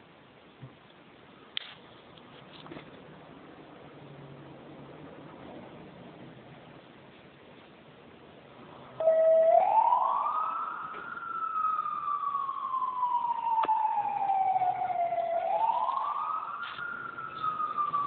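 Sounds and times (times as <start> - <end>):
fire engine siren wailing: 9.0 - 18.0.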